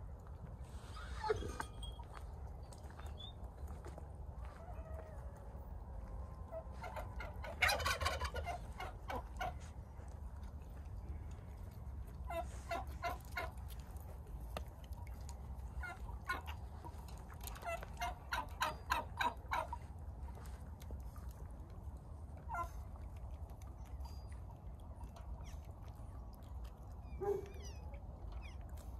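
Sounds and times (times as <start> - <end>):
turkey gobbling: 6.8 - 9.6, 15.8 - 16.5, 17.6 - 19.7.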